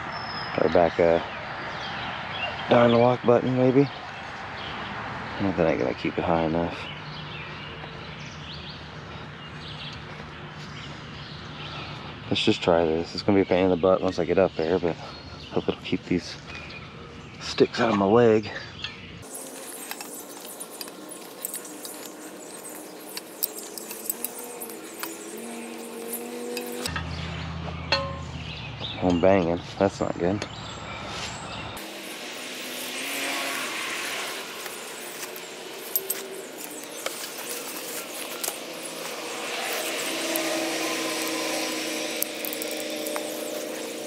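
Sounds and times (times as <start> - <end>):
gear clicking scraping and rattling: 19.2 - 27.1, 33.0 - 44.0
metal hardware clinking: 19.8 - 27.1, 27.9 - 28.3, 34.6 - 39.1, 39.7 - 44.0
steady hum: 31.8 - 44.0.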